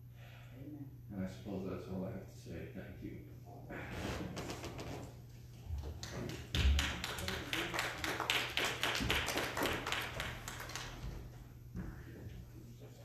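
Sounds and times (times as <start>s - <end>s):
group of people clapping: 5.8s - 11.4s.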